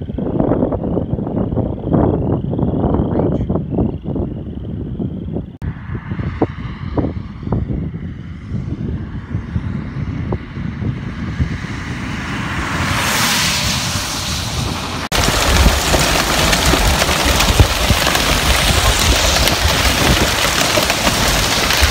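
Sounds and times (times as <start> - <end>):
road noise: 0.0 - 21.9
wind buffeting microphone: 0.0 - 21.9
hail pelting a vehicle: 15.1 - 21.9.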